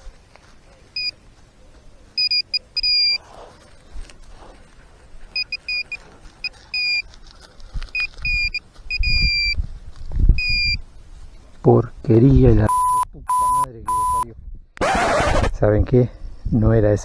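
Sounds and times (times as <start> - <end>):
short high electronic beeps: 2.2 - 3.2, 12.7 - 14.2.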